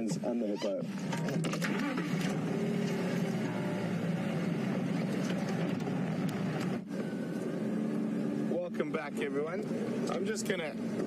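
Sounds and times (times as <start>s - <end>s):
vehicle engine driving on dirt track: 0.8s - 11.0s.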